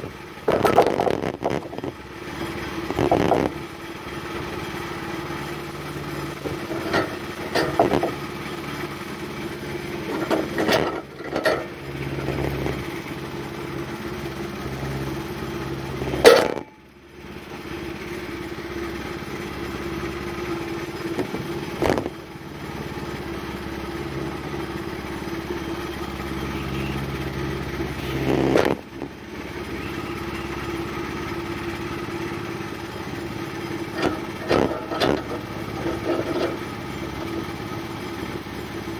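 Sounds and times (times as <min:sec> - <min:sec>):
sawmill gas engine running: 0:00.0 - 0:38.9
clanks and knocks: 0:00.4 - 0:01.9, 0:06.4 - 0:08.2, 0:10.0 - 0:11.8, 0:16.2 - 0:16.7, 0:33.9 - 0:37.5.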